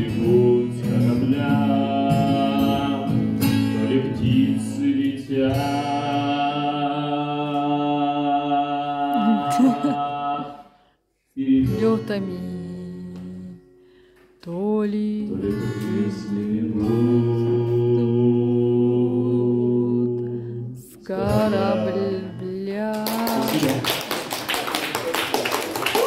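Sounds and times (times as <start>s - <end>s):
man singing: 0.0s - 10.7s, 11.4s - 13.6s, 14.4s - 23.8s
acoustic guitar: 0.0s - 23.8s
audience applause: 23.0s - 26.0s.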